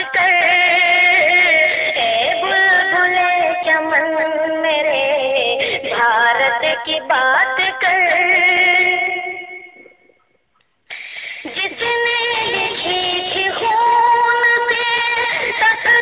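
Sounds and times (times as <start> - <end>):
high voice singing devotional song: 0.0 - 10.3, 10.9 - 16.0
music: 10.9 - 16.0.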